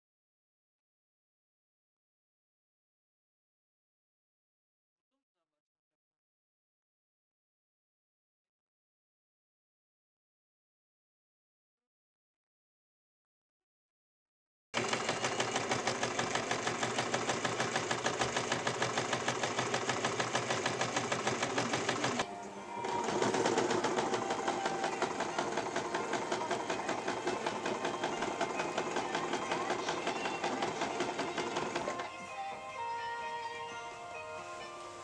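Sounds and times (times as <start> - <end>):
sewing machine stitching: 14.8 - 32.1.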